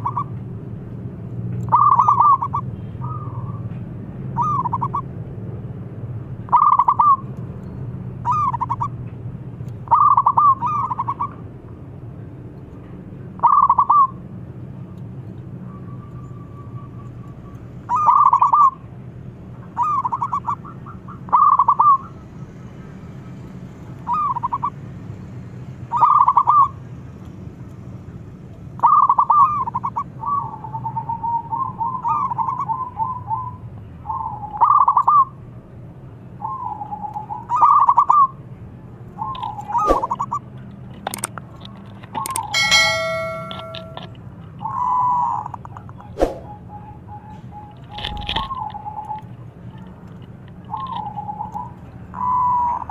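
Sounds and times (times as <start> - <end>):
low steady hum: 42.5 - 44.4.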